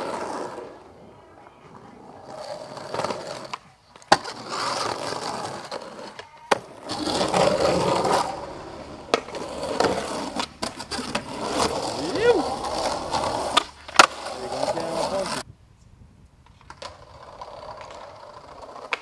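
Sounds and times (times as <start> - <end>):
skateboard wheels rolling on concrete: 0.0 - 19.0
skateboard clacks: 1.4 - 15.4, 16.4 - 19.0.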